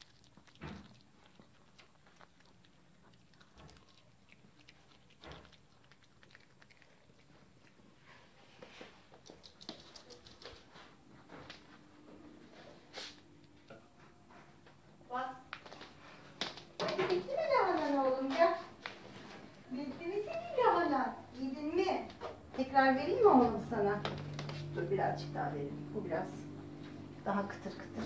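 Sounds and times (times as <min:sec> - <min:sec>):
dog chewing cabbage: 0:00.0 - 0:10.8.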